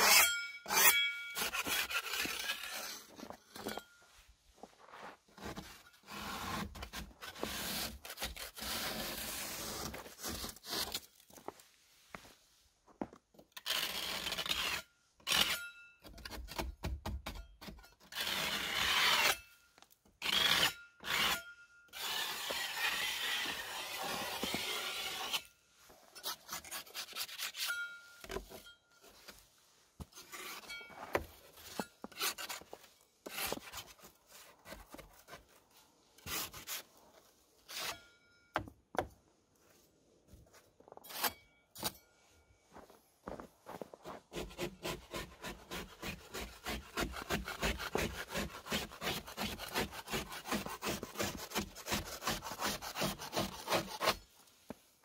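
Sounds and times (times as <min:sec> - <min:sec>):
snow scraped off wood: 0:04.6 - 0:12.7, 0:22.0 - 0:27.7.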